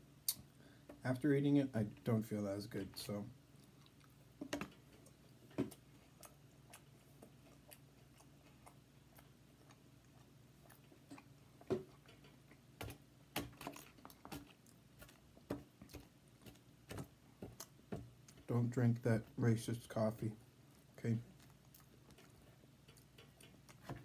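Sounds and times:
faint low room hum: 0.0 - 24.0
person chewing food: 3.5 - 18.5, 20.6 - 24.0.

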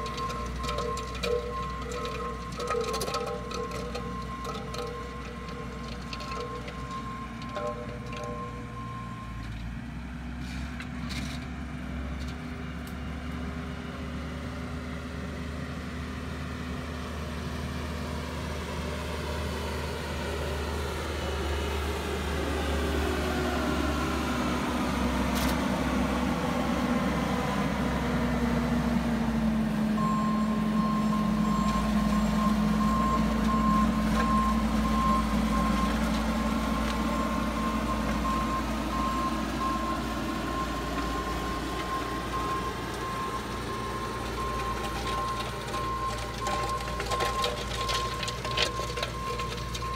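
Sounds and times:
backup alarm beeping: 0.0 - 9.4, 30.0 - 36.5, 37.1 - 49.9
diesel engine running: 0.0 - 49.9.

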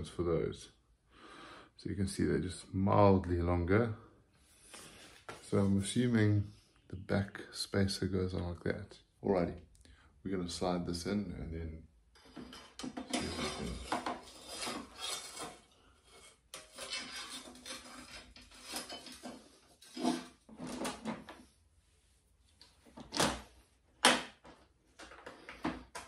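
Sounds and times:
metal rack scraping plastic: 12.2 - 21.4.

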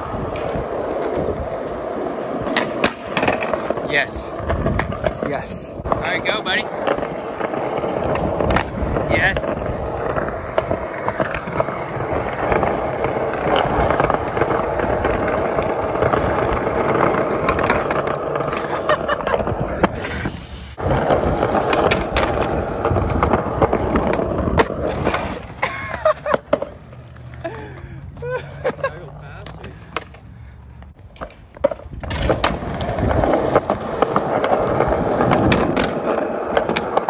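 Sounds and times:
skateboard wheels rolling on concrete: 0.0 - 37.0
skateboard knocks: 31.1 - 37.0.

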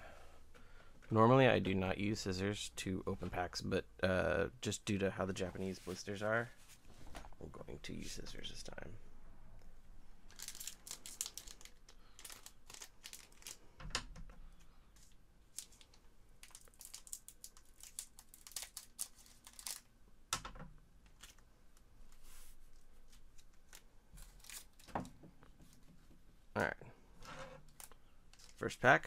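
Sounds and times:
foil pack crinkling: 10.3 - 13.6, 15.0 - 19.9, 23.4 - 24.9.

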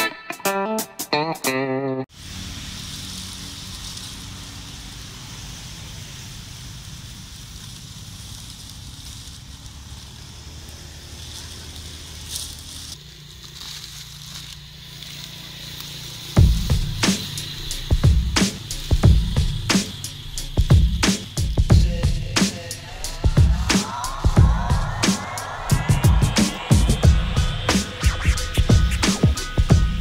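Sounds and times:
high hiss: 2.1 - 30.0
low rumble: 16.3 - 30.0
loud low thumps and crackles: 16.4 - 30.0.

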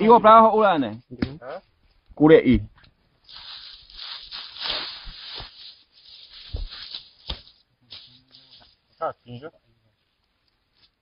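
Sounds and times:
rustling through dry brush: 3.0 - 9.0
soft thumps: 6.4 - 8.1.

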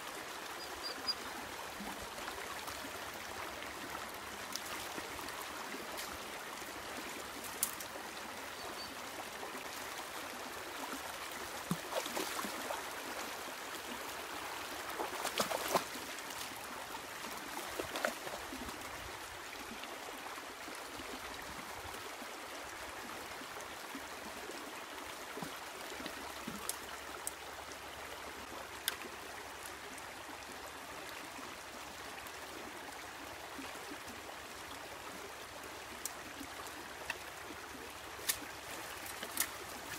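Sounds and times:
rocky creek running: 0.0 - 39.9
dogs splashing through water: 14.9 - 16.0, 17.6 - 18.4.

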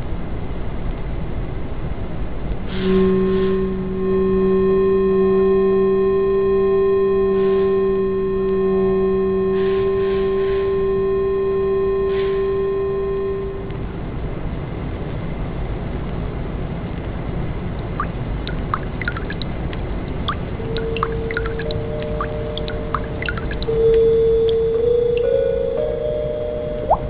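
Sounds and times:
sustained chord drone: 2.9 - 14.0, 18.4 - 27.0.

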